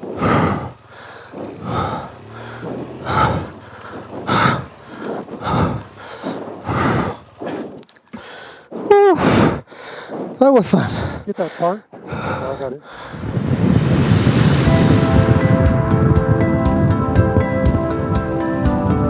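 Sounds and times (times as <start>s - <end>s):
person breathing hard: 0.0s - 13.5s
person exclaiming: 8.8s - 9.4s.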